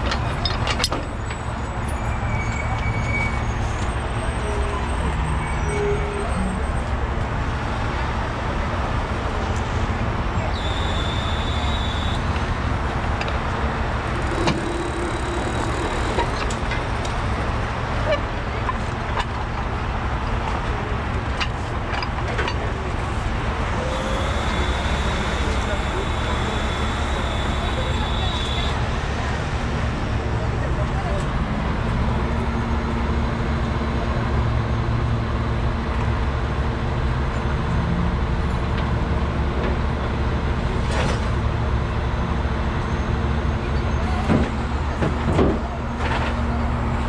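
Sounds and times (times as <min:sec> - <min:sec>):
diesel engine idling: 0:09.9 - 0:34.1.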